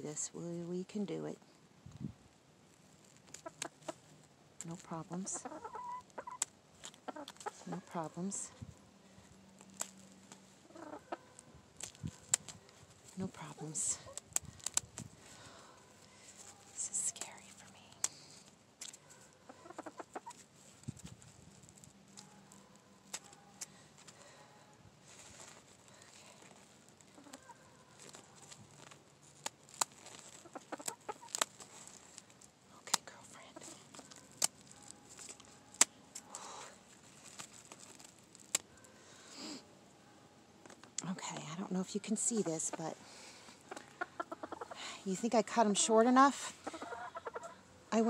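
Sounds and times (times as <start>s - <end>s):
faint chicken clucking: 5.2s - 8.5s, 10.6s - 12.3s, 18.9s - 20.5s, 26.4s - 28.8s, 30.2s - 32.0s, 42.3s - 44.9s, 46.4s - 48.0s.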